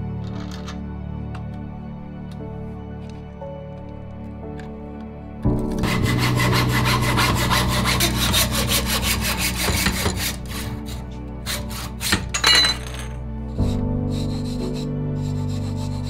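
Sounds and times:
hand saw cutting tube: 0:05.7 - 0:12.4, 0:13.6 - 0:16.0.

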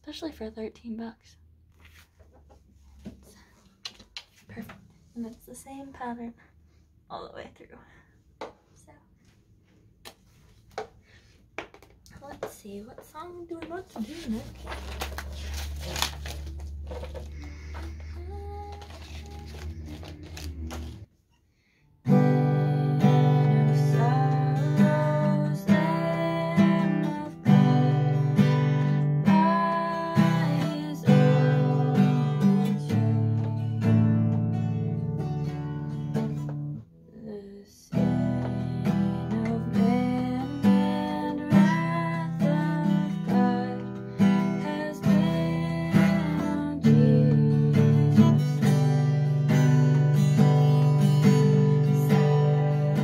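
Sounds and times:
person singing: 0:17.3 - 0:21.1, 0:22.1 - 0:28.5, 0:29.2 - 0:33.4
acoustic guitar strumming: 0:22.1 - 0:36.8.

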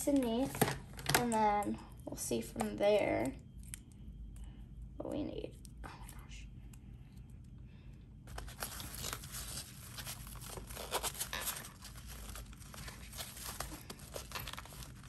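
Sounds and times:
fabric rustling and scratching: 0:08.3 - 0:15.0.

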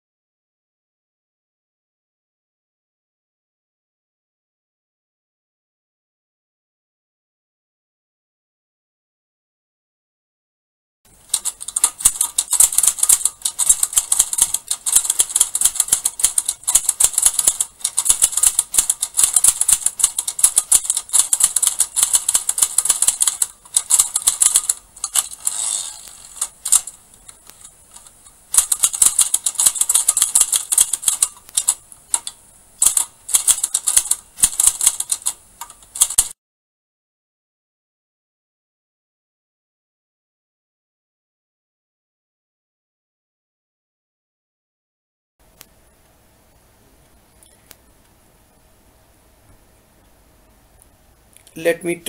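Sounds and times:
typewriter keys clacking: 0:11.3 - 0:36.4.

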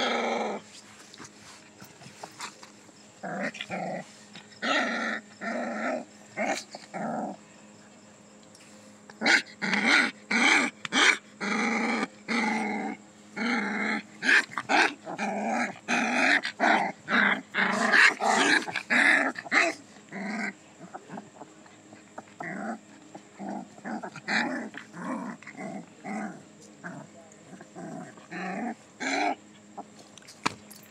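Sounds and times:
puppies growling: 0:00.0 - 0:07.5, 0:09.2 - 0:30.0.

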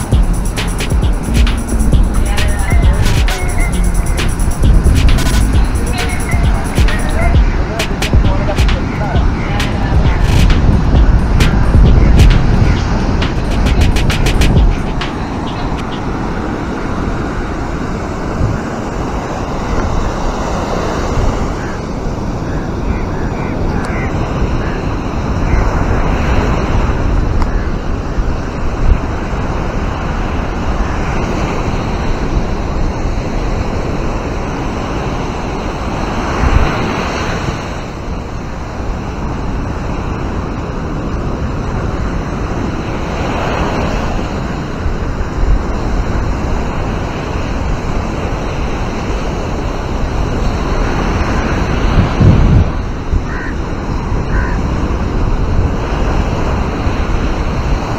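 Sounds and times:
wind rumble on microphone: 0:00.0 - 0:57.9
surf breaking on beach: 0:07.0 - 0:57.9.

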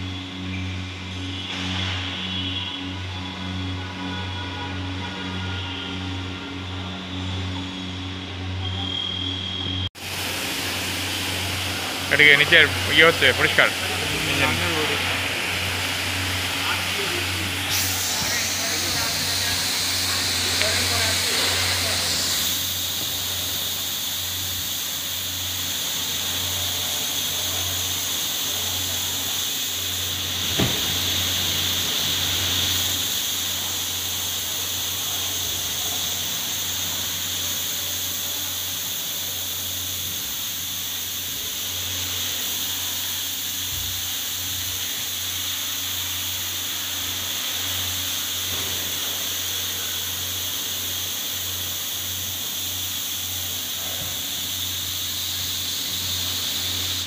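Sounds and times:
water jet hissing: 0:00.0 - 0:57.0
brief knock: 0:30.5 - 0:31.0.

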